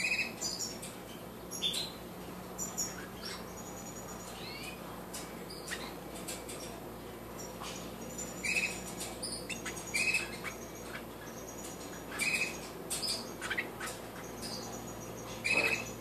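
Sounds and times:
high-pitched bird chirps: 2.6 - 4.8, 8.2 - 16.0.

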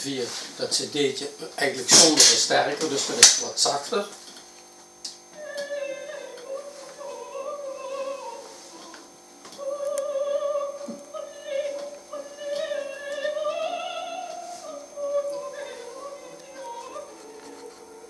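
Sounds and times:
operatic singing with accompaniment: 5.3 - 18.0.

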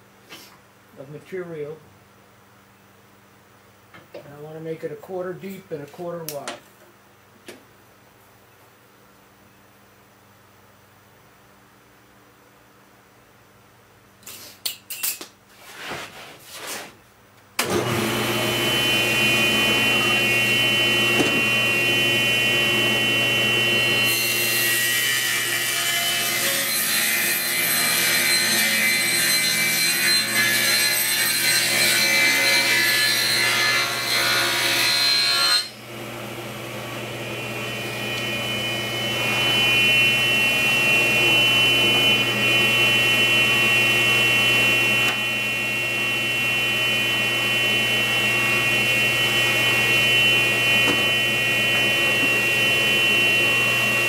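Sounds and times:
table saw whine: 17.6 - 54.0.

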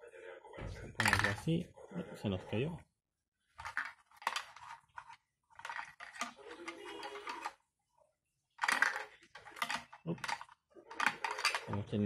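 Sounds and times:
plastic toy parts clicking: 8.6 - 11.9.

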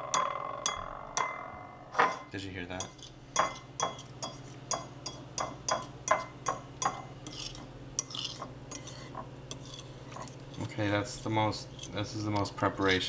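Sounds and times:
fork scraping bowl: 7.2 - 13.0.

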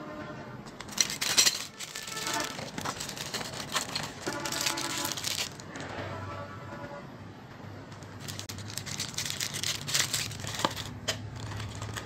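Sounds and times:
plastic bag crinkling: 0.8 - 5.8, 8.1 - 12.0.

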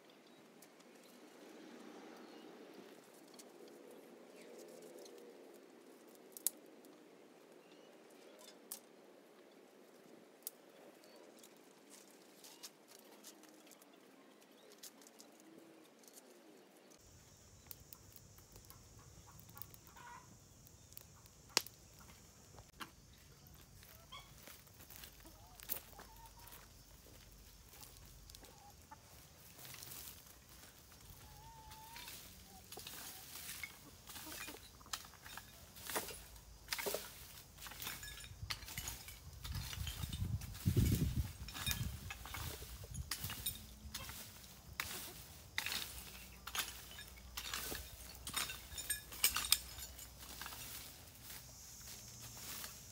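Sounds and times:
fire crackling: 17.0 - 25.8, 26.6 - 31.3
hoe scraping leaves and dirt: 18.6 - 52.9
chickens clucking: 23.8 - 35.8.

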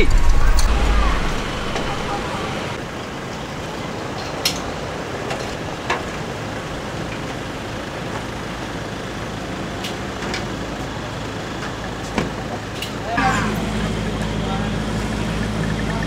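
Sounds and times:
noisy crowd rumble: 0.0 - 16.0.

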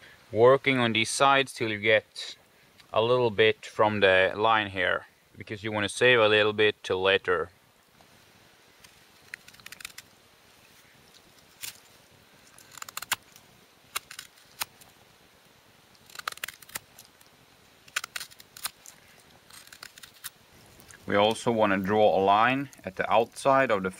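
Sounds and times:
knife slicing wood chips: 16.0 - 17.1, 17.9 - 20.4.

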